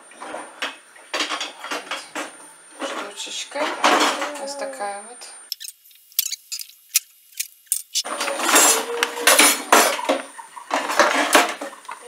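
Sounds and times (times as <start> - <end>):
sharp clicks: 5.5 - 8.1
kitchen utensils clattering in drawer: 8.1 - 11.7.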